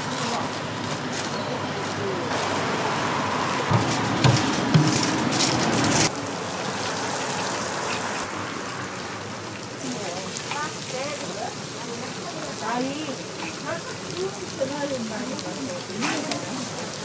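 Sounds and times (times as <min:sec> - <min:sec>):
knocks: 0:03.7 - 0:05.4
hot oil sizzling in deep fryer: 0:06.1 - 0:17.0.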